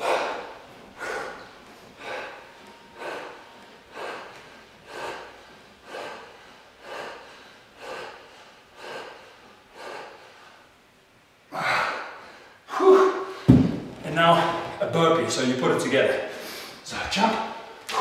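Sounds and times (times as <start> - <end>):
man exhaling forcefully: 0.0 - 1.4.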